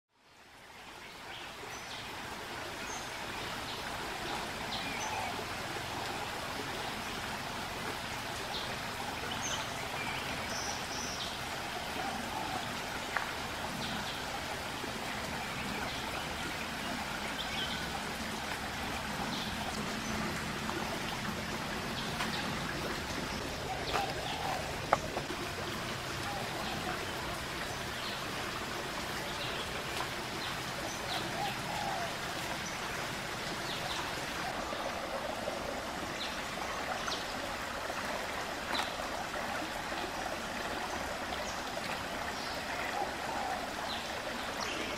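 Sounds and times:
stream flowing over rocks: 0:00.2 - 0:44.9.

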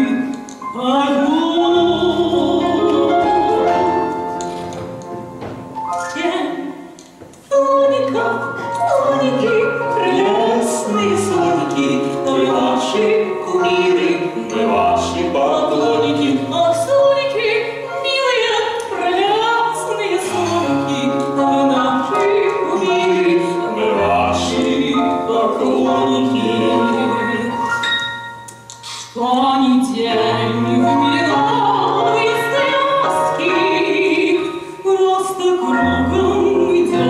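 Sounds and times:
keyboard piano chords and bass: 0:00.0 - 0:07.3, 0:07.9 - 0:29.0, 0:35.6 - 0:37.0
person singing: 0:29.2 - 0:37.0.

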